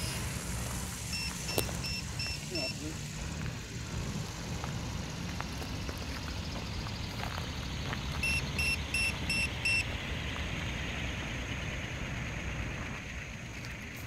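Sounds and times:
short high beeps: 0:01.1 - 0:02.9, 0:08.2 - 0:09.8.

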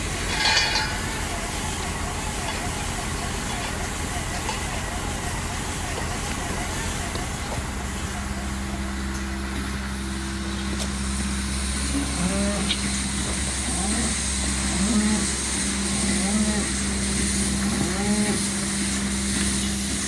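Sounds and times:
tractor engine droning: 0:00.0 - 0:20.0.

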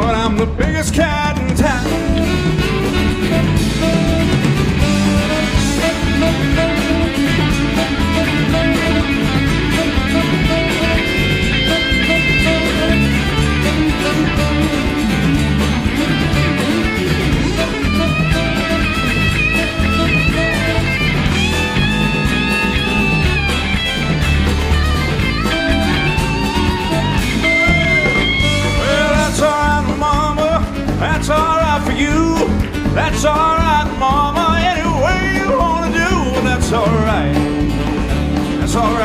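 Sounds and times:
rock band playing: 0:00.0 - 0:39.0
electric guitar solo: 0:02.0 - 0:29.7.

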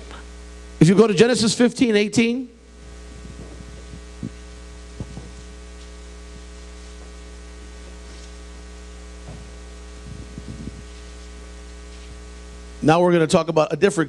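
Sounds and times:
electrical mains hum: 0:00.0 - 0:14.0
soft knocks: 0:09.2 - 0:09.6.

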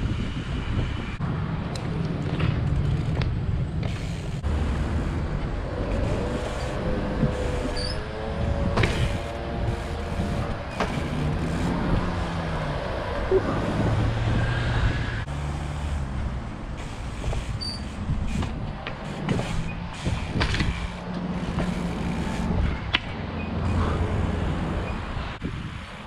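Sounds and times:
bike tyres rumbling on stone: 0:00.0 - 0:26.0.

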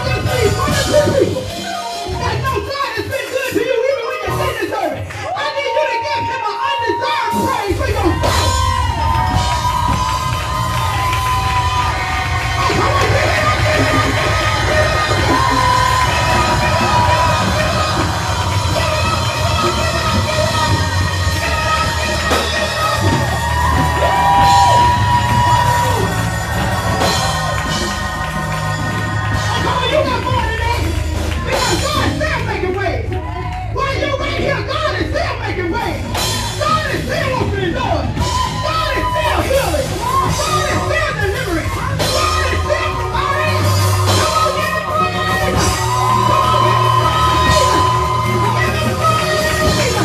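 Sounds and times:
steady bass: 0:00.0 - 0:05.2, 0:07.3 - 0:50.0
gospel band playing: 0:00.0 - 0:50.0
keyboard holding long chords: 0:07.3 - 0:50.0
voices singing and calling out: 0:08.1 - 0:34.6.

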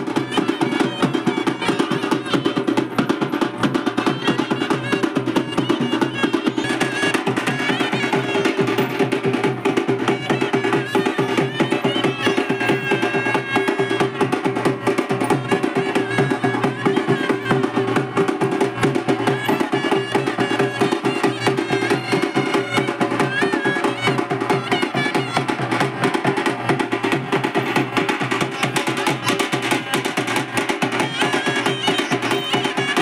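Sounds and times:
fast dense drumming: 0:00.0 - 0:33.0.

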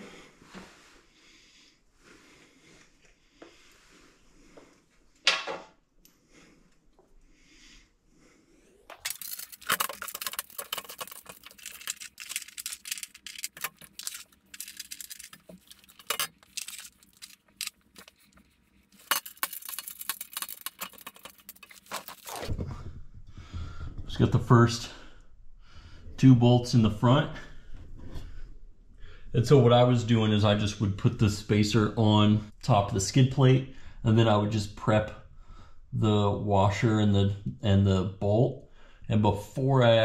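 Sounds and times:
metal parts clinking and rattling: 0:08.9 - 0:22.5.

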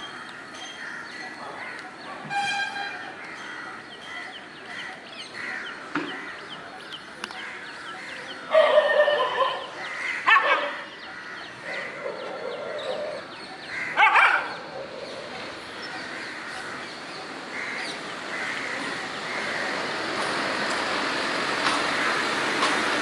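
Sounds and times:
drawn-out animal call: 0:00.9 - 0:20.1
small birds chirping: 0:10.8 - 0:19.6.

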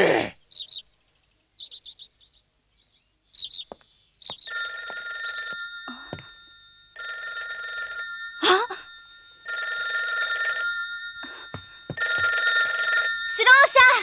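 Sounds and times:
high bird chirps: 0:00.4 - 0:04.6
telephone bell ringing: 0:04.5 - 0:14.0.

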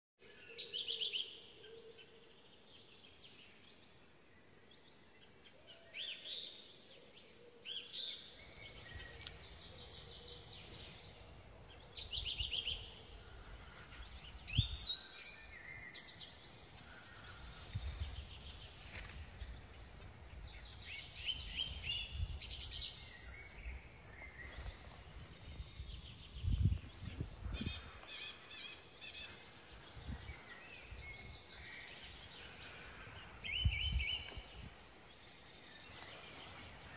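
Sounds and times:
birds chirping and trilling: 0:00.2 - 0:36.9.

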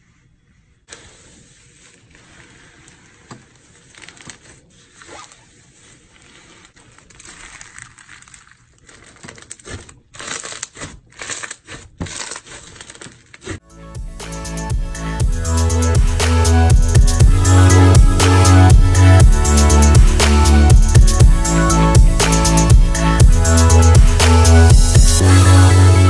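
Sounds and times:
slime with foam beads crackling: 0:01.0 - 0:13.6.

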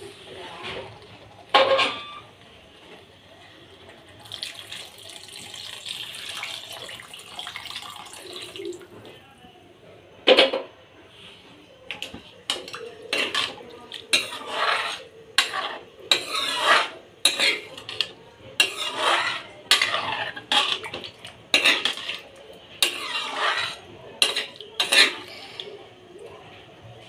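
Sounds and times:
steel spoon scraping metal pot: 0:12.6 - 0:25.4.

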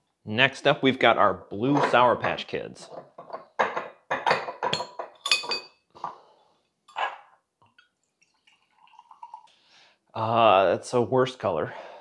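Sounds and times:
glass clinking and knocking: 0:01.6 - 0:06.2.

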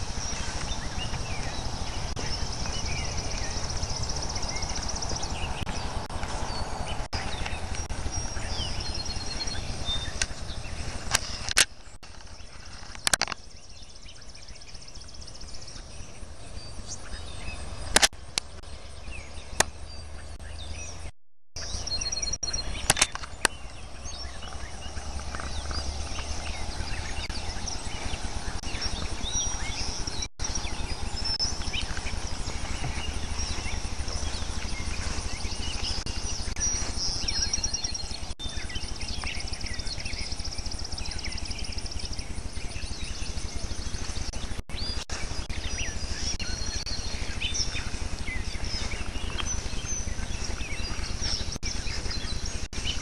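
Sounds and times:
high trilling bird chirp: 0:00.0 - 0:53.0
low rumble: 0:00.0 - 0:53.0
sharp clicks: 0:11.1 - 0:13.5, 0:17.9 - 0:18.7, 0:22.4 - 0:23.6.

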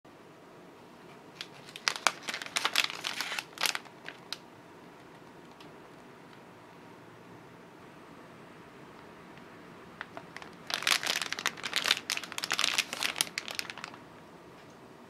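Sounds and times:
faint room noise: 0:00.1 - 0:15.0
plastic packaging crinkling: 0:01.3 - 0:04.4, 0:10.0 - 0:14.0.

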